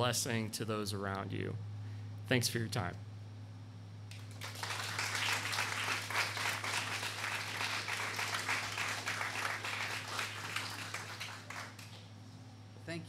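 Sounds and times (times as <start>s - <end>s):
audience applauding: 4.1s - 12.1s.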